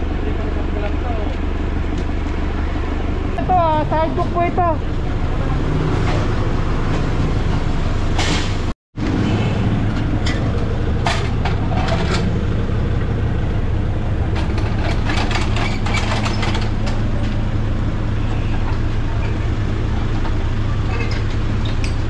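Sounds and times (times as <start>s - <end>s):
vehicle engine idling: 0.0s - 22.0s
metal clicks and rattles: 14.4s - 17.1s.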